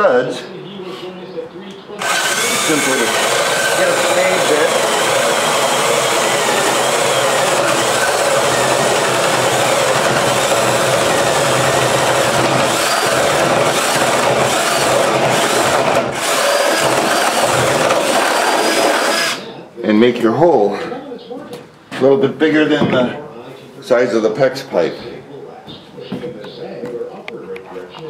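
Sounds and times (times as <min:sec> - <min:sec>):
cordless drill boring into wood: 0:02.0 - 0:19.5.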